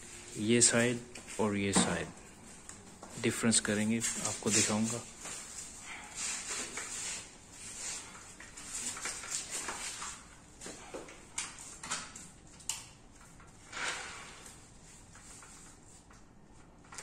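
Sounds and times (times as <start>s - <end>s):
handling rustles: 0.6s - 10.9s.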